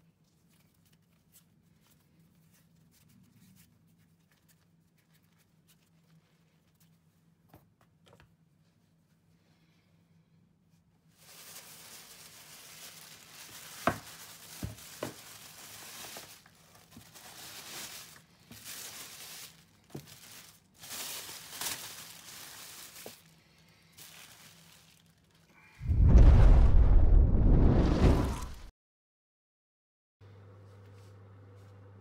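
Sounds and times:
plastic bag rustling: 11.1 - 25.5.

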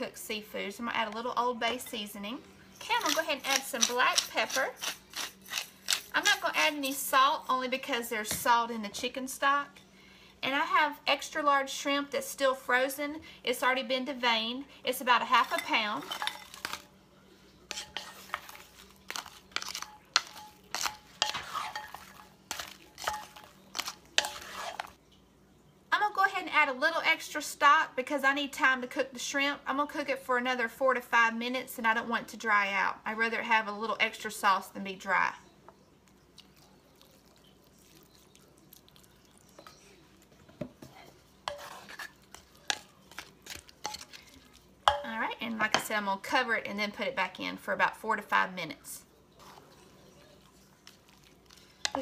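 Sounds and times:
spatula scraping a dish: 2.8 - 7.1, 15.3 - 16.9, 17.7 - 25.0, 40.8 - 45.9.

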